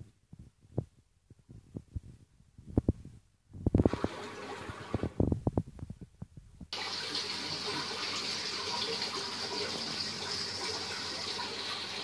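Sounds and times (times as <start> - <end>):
running water rushing: 3.8 - 5.2, 6.8 - 12.0.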